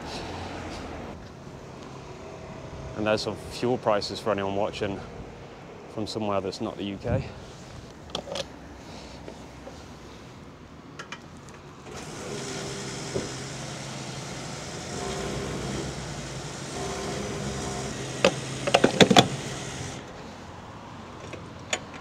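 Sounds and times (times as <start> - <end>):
fuel pump humming: 11.8 - 20.2
fuel flowing: 11.8 - 20.3
nozzle clicks: 17.1 - 20.0.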